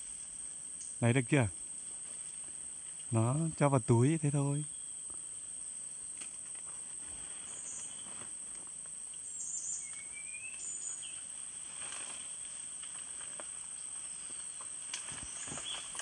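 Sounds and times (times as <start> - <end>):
bird chirps: 9.2 - 11.2.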